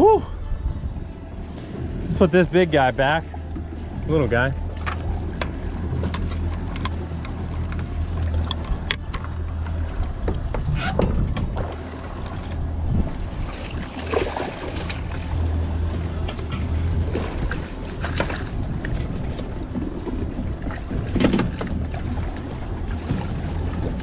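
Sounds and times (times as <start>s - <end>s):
boat engine low hum: 0.0s - 24.0s
water sloshing along hull: 0.0s - 24.0s
fish splashing: 13.3s - 19.2s.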